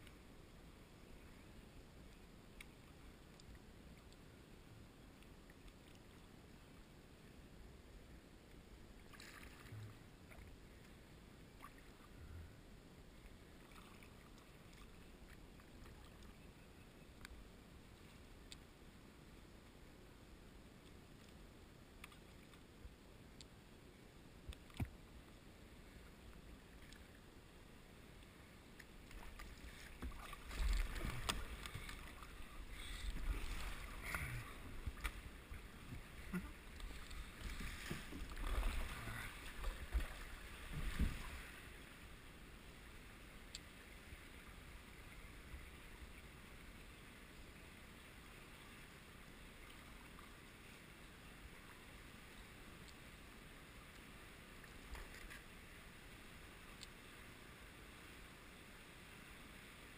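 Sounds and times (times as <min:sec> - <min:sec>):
kayak paddle splashing: 0:28.9 - 0:42.0.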